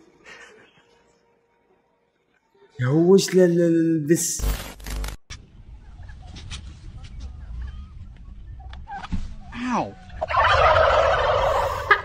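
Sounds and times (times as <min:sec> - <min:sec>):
turkeys gobbling: 0:08.6 - 0:12.0.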